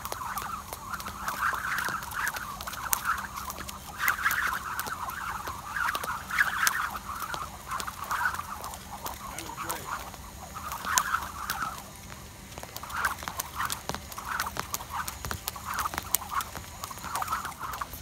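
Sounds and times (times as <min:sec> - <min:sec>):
skipping rope slapping concrete: 0:00.0 - 0:18.0.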